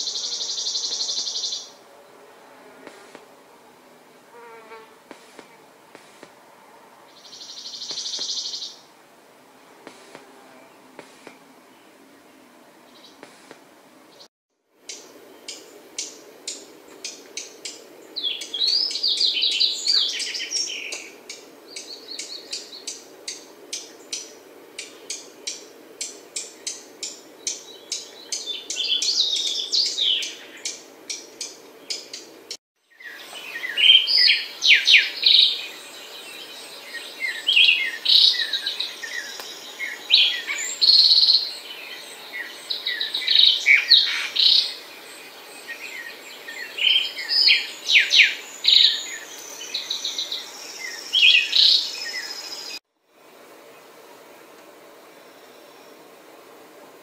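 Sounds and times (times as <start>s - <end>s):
sparrow singing whistled notes: 32.9s - 52.8s.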